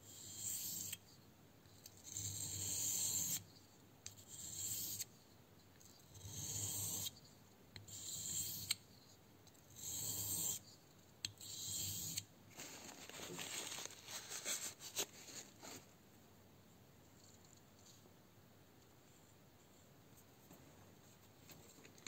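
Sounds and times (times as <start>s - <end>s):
knife scraping on whetstone: 7.9s - 8.8s, 9.8s - 10.6s.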